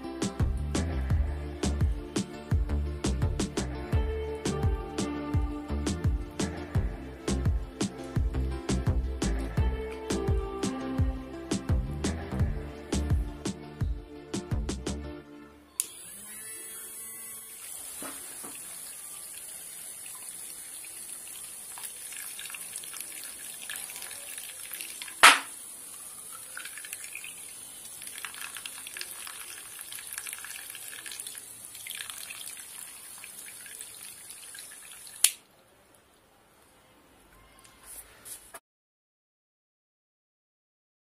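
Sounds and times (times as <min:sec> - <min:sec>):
water pump high whine: 0:15.8 - 0:35.1
water pouring and splashing: 0:17.5 - 0:35.4
sharp knock: 0:25.2 - 0:25.5.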